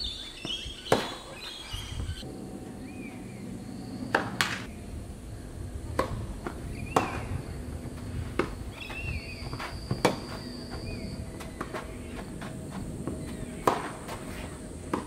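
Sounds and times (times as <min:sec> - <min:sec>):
racquets striking tennis ball: 0:00.4 - 0:01.6, 0:04.1 - 0:04.7, 0:05.9 - 0:15.0
shoes on court: 0:06.1 - 0:15.0.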